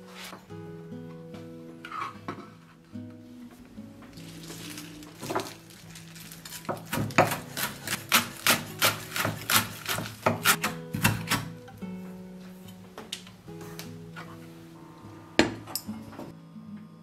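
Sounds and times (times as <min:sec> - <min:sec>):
soft background music: 0:00.0 - 0:17.0
knife chopping on wooden board: 0:06.7 - 0:11.6.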